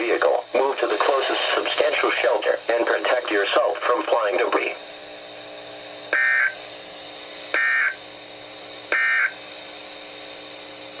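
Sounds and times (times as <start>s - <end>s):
shrill digital data tones: 6.2s - 6.6s, 7.6s - 8.0s, 8.9s - 9.4s.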